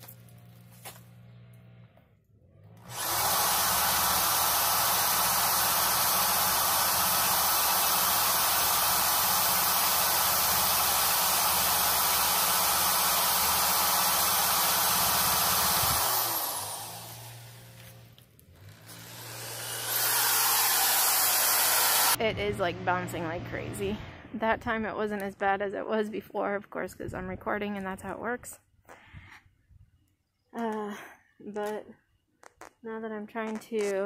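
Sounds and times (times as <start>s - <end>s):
power tool eraser wheel spinning: 2.7s - 22.2s.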